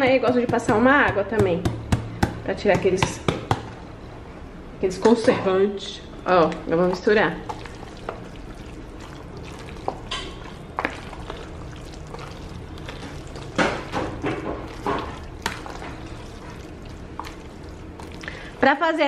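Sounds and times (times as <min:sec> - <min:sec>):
spoon stirring wet salad: 0:06.2 - 0:18.6.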